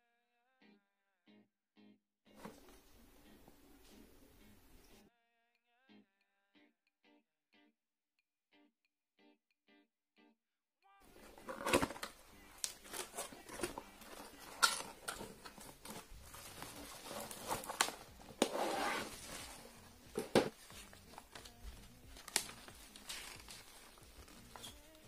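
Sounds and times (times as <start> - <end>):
packing paper rustling: 11.1 - 25.0.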